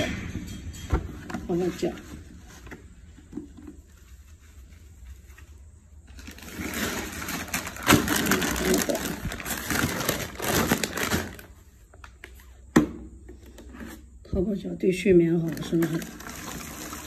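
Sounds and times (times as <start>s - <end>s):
crackling crinkling rustle: 3.8s - 12.5s, 15.4s - 17.0s.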